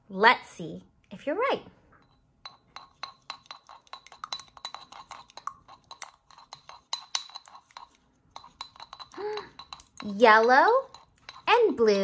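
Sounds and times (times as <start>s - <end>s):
paintbrush clinking in glass jar: 2.0s - 12.0s.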